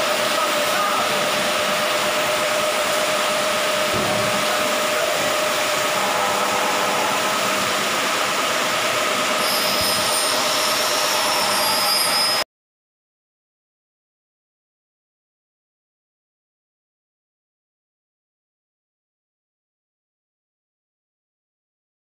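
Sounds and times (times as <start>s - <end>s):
angle grinder cutting metal: 0.0s - 12.4s
workshop machinery humming: 0.0s - 12.4s.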